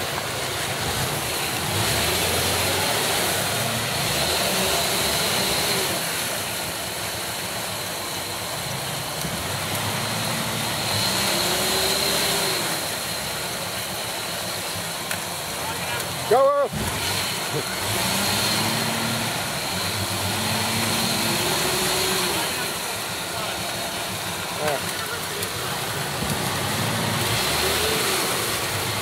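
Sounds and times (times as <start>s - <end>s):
off-road engines revving in mud: 0.0s - 29.0s.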